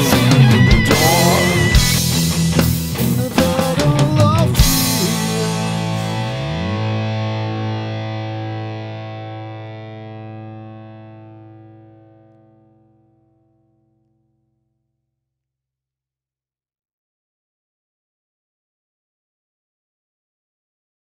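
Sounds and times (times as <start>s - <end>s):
heavy rock band playing: 0.0s - 11.4s
distorted guitar chord ringing: 0.0s - 14.0s.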